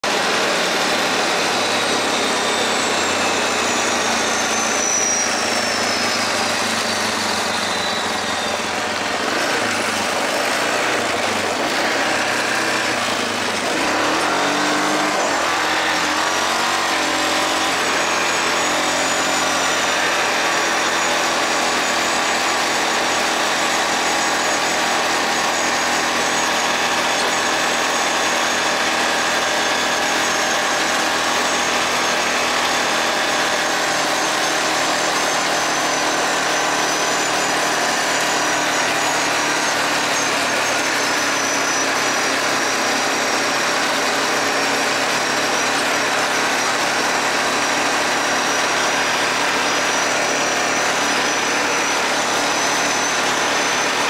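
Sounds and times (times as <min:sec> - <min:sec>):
quad bike engine running: 0:00.0 - 0:54.0
high whine falling in pitch: 0:00.1 - 0:11.3.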